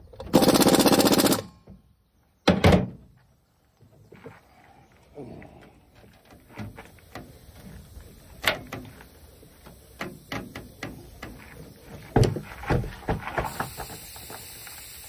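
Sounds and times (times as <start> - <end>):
tire thumping on truck deck: 12.0 - 13.8.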